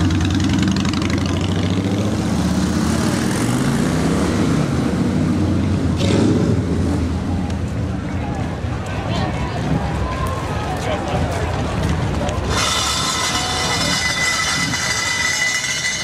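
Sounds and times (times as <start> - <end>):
motorcycle engines riding past: 0.0 - 8.5.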